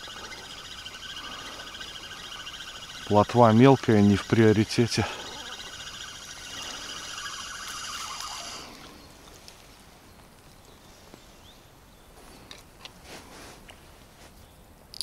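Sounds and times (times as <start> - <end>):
fishing reel whirring: 0.0 - 9.0.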